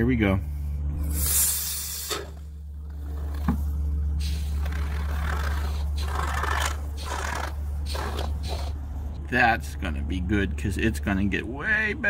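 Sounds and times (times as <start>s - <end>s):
steady low hum: 0.0s - 12.0s
aerosol foam spraying: 4.2s - 8.7s.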